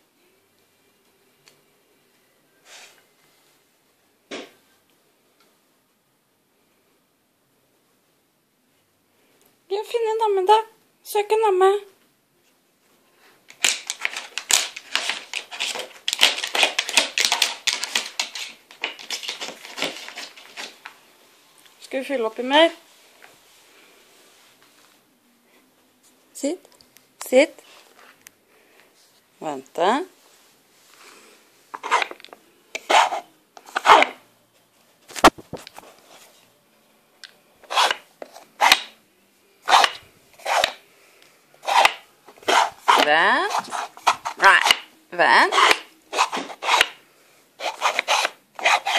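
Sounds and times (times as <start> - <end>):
plastic blocks scraping: 13.5 - 20.8, 31.8 - 32.2, 32.8 - 34.2, 37.6 - 38.9, 39.7 - 40.8, 41.6 - 44.8, 45.5 - 47.0, 47.6 - 48.9
wooden puzzle blocks clattering: 13.6 - 20.8.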